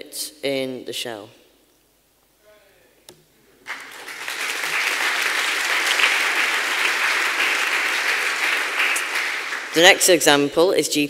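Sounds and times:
audience applauding: 3.6 - 10.2.

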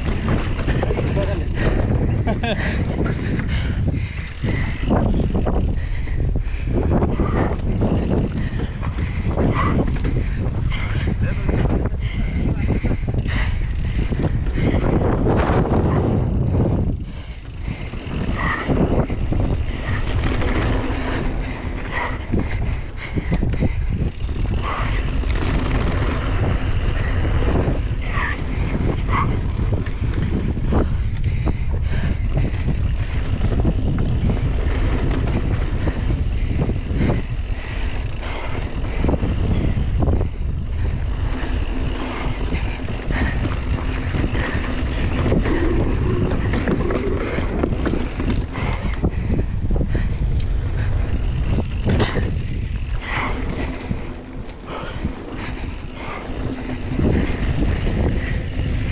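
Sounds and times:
bike knocks and rattles: 0.0 - 5.9, 6.8 - 58.9
bike tyre noise on dirt: 0.0 - 58.9
wind rumble on microphone: 0.0 - 58.9.

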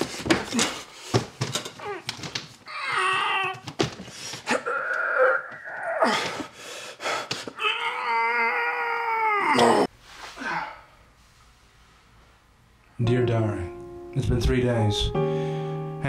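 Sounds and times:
man straining and groaning: 4.4 - 10.9.

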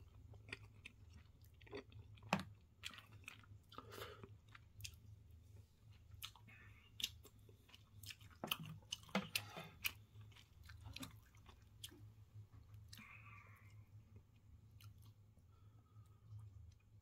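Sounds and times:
person chewing food: 0.0 - 17.0.

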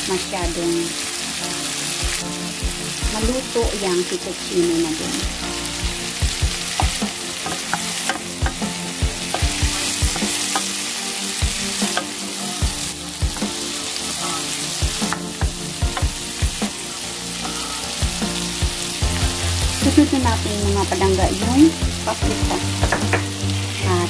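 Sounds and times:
vegetables sizzling in a pan: 0.0 - 24.0.

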